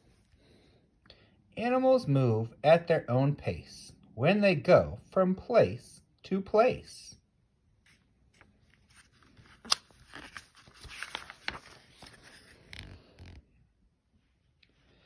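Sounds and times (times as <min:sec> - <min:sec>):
book pages turning: 0:07.8 - 0:13.6.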